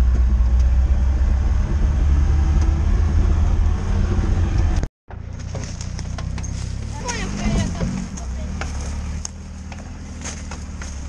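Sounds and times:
off-road vehicle engine rumble: 0.0s - 11.0s.

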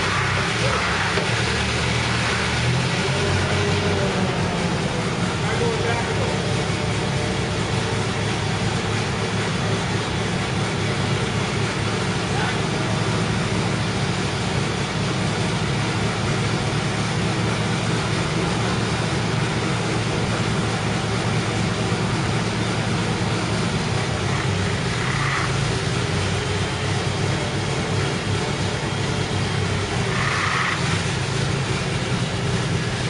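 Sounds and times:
engine idling: 0.0s - 33.0s.

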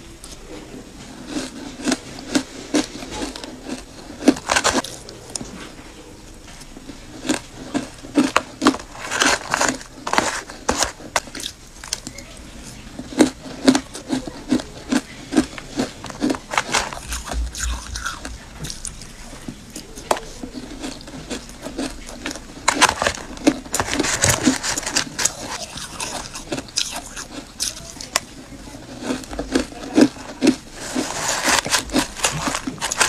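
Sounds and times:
ice being chewed: 0.2s - 33.0s
metal spoon scraping crushed ice: 7.2s - 12.0s, 13.0s - 19.0s, 20.5s - 28.2s, 28.8s - 33.0s.

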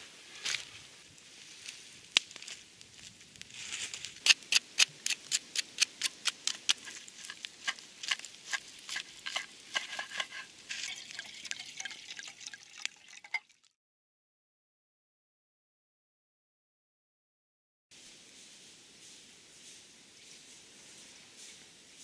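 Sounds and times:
wood fire crackling: 1.0s - 13.4s.

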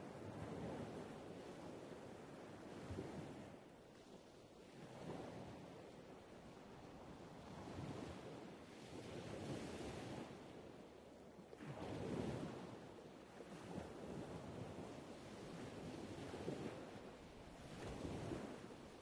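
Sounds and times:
wind on microphone: 6.8s - 10.7s, 11.6s - 19.0s
waves washing on beach: 11.5s - 19.0s.

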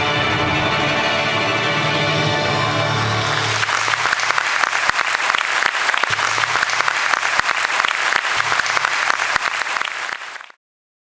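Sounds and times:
audience applauding: 2.8s - 10.6s.

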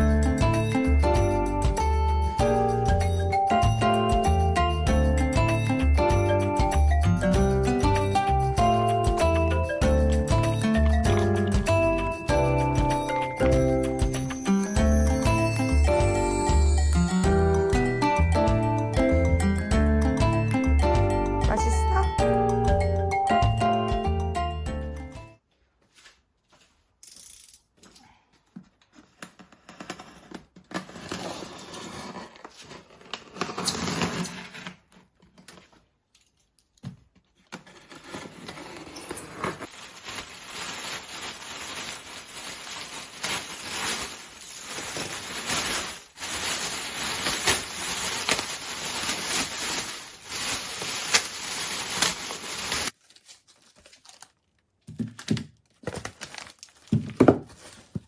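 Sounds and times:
tape tearing: 29.2s - 35.6s, 37.5s - 54.4s
styrofoam scraping: 29.6s - 34.8s, 37.6s - 53.0s
plastic bag crinkling: 39.5s - 58.0s.

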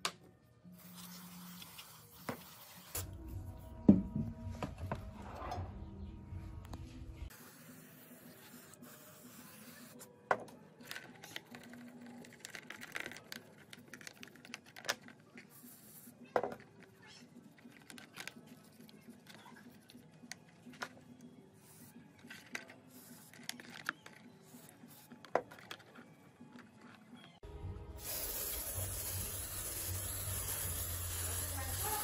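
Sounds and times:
plastic parts clicking and rattling: 10.8s - 15.5s, 17.5s - 21.1s, 22.2s - 24.3s, 25.2s - 27.0s.

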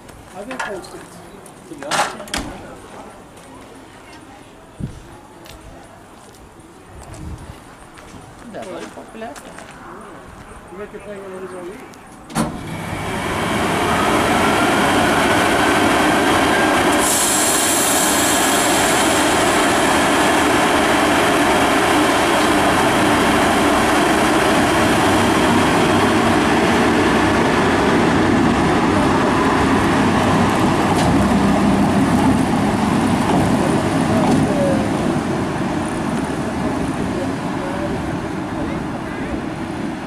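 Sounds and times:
locomotive cooling fans running: 12.6s - 40.0s
high hiss: 16.9s - 20.2s.

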